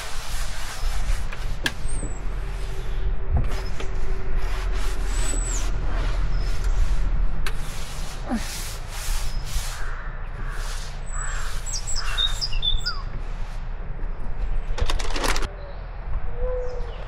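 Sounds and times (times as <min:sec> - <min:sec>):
small birds chirping: 0:09.2 - 0:13.2
crow cawing: 0:09.8 - 0:12.3.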